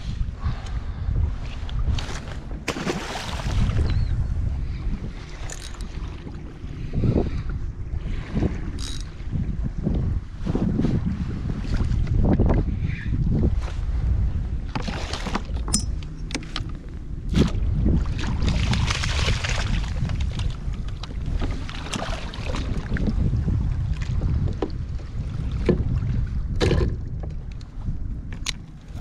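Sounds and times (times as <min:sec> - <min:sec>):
wind rumbling on microphone: 0:00.0 - 0:29.0
water sloshing: 0:02.0 - 0:03.9, 0:14.8 - 0:23.2.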